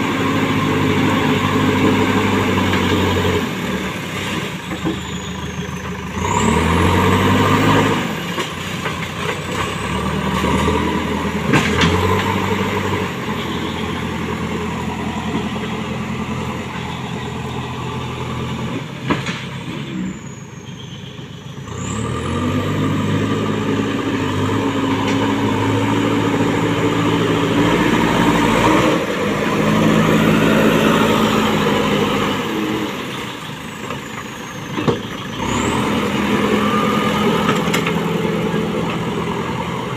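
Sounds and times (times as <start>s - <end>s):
diesel engine revving under load: 0.0s - 39.9s.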